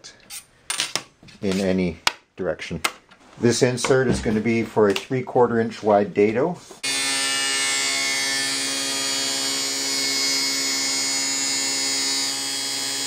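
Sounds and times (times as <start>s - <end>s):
table saw whine: 6.8s - 13.0s.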